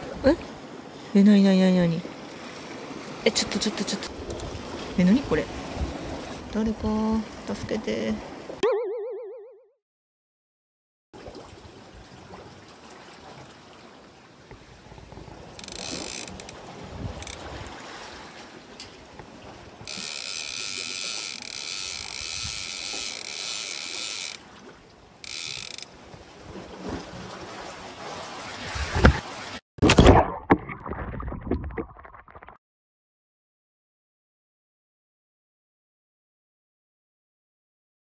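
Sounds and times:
fishing reel clicking whirr: 15.6s - 16.6s, 17.2s - 17.4s, 19.8s - 24.4s, 25.2s - 25.9s.

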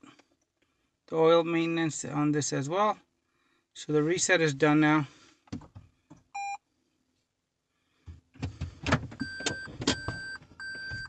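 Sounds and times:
car reverse warning beeping: 6.4s - 6.6s, 9.2s - 11.0s.

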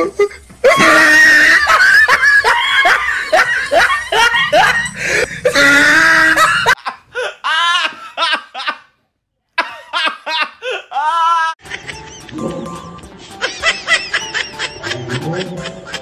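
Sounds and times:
loud rapid pitched cries: 0.6s - 6.8s
woman laughing hard: 0.6s - 8.8s, 9.6s - 12.6s, 13.2s - 16.0s.

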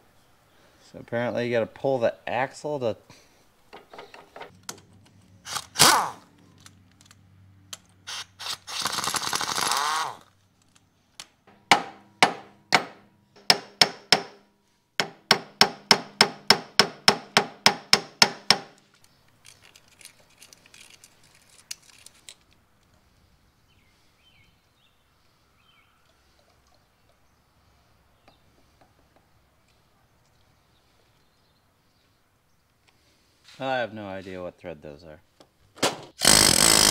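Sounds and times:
hammer clanging on steel hub: 11.5s - 14.4s.

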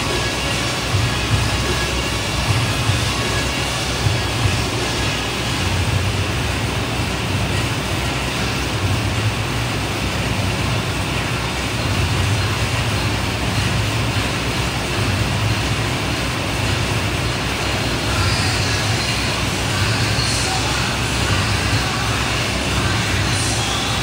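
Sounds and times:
exercise bike fan whirring: 0.0s - 24.0s.

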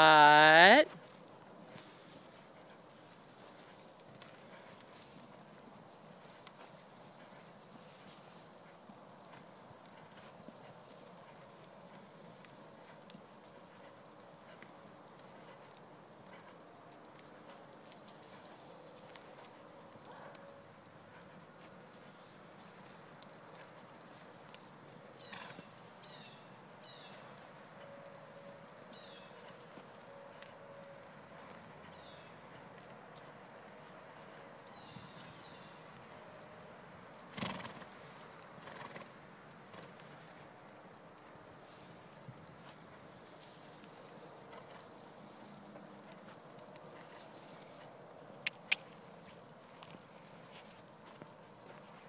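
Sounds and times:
high insect hum: 0.0s - 52.0s
muffled hoofbeats on dirt: 0.0s - 52.0s
sharp clicks: 48.5s - 49.0s.

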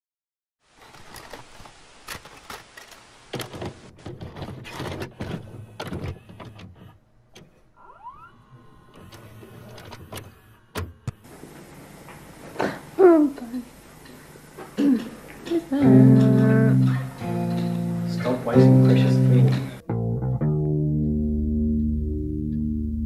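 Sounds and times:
mechanical clunks and clicks: 3.3s - 7.6s
motor whirring: 5.2s - 11.2s.

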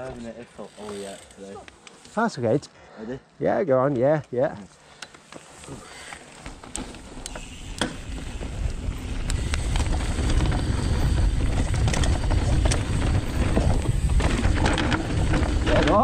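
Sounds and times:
bike clicks and knocks: 5.0s - 16.0s
bike tyres rolling on dirt: 5.2s - 16.0s
wind rushing over microphone: 7.8s - 16.0s.

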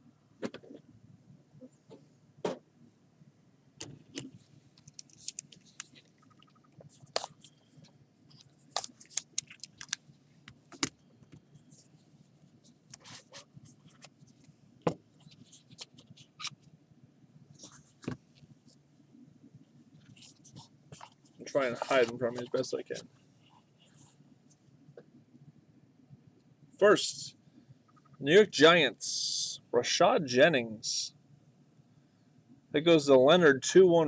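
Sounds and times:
card packaging crinkling: 8.7s - 10.0s.

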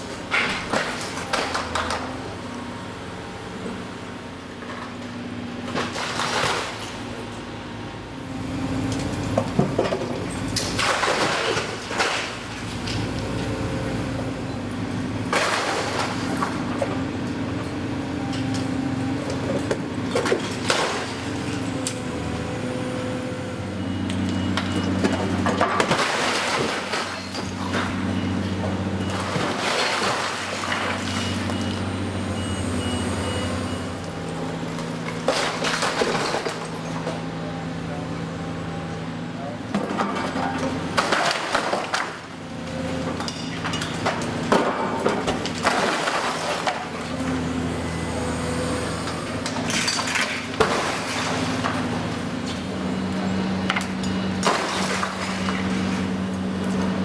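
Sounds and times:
excavator diesel engine running: 0.0s - 10.8s, 12.3s - 25.9s, 26.9s - 41.0s, 42.0s - 57.0s
bricks and debris crashing: 9.6s - 12.4s, 35.1s - 36.8s, 39.8s - 42.2s, 43.2s - 46.9s, 54.4s - 55.8s.

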